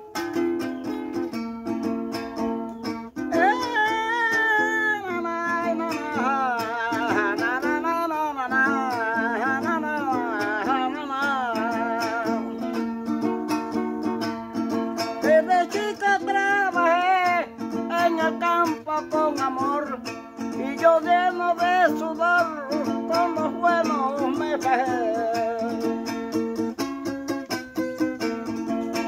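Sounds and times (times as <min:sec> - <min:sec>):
small guitar strummed: 0:00.0 - 0:29.0
man singing: 0:03.3 - 0:12.8, 0:15.1 - 0:27.2.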